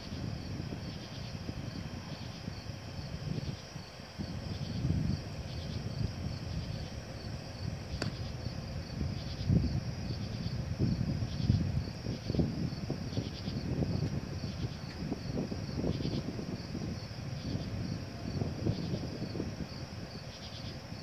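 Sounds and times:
night insects chirping: 0.0s - 21.0s
sharp click: 8.0s - 8.2s.

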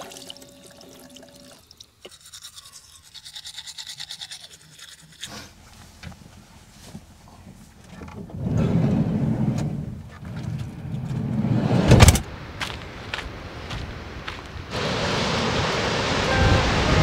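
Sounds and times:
toothbrush scrubbing teeth: 2.0s - 5.6s.

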